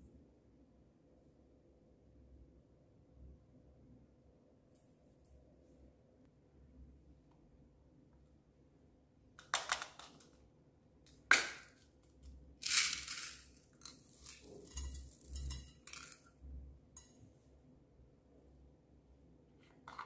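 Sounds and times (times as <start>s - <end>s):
beads pouring and rattling: 12.6s - 16.3s
beads clinking into bowl: 12.6s - 16.4s.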